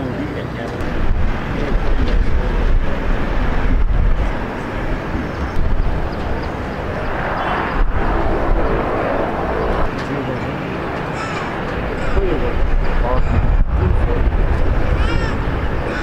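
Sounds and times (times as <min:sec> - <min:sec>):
distant jet engines rumbling: 0:00.0 - 0:16.0
faint engine whine: 0:00.0 - 0:16.0.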